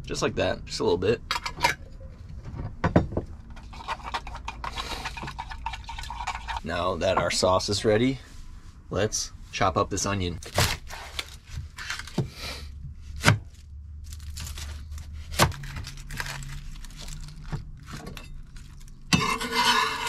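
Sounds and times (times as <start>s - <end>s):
onion skin crinkling: 13.5s - 17.8s.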